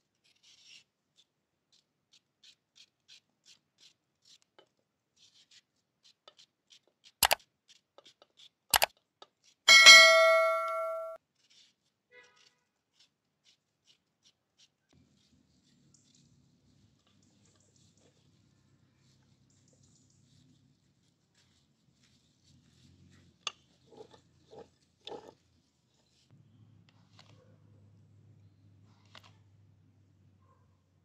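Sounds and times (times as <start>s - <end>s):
knife cutting watermelon rind: 0.0s - 9.6s, 11.2s - 19.4s
notification bell chime: 9.7s - 11.2s.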